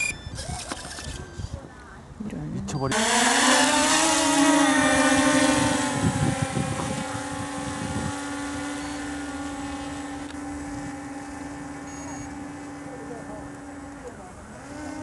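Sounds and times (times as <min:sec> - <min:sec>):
quadcopter motors humming: 0:02.7 - 0:15.0
wind rumble on microphone: 0:04.8 - 0:12.4.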